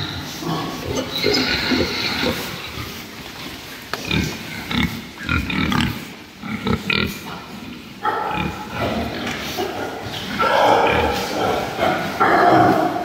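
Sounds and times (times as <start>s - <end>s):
young pigs grunting: 0.0s - 3.2s, 4.0s - 13.0s.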